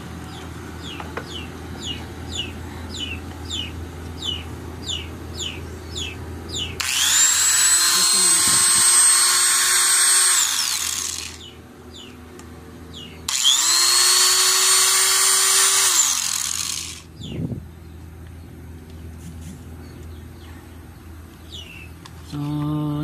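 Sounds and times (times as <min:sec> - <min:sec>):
angle grinder motor whining: 0:06.8 - 0:11.5, 0:13.3 - 0:17.1.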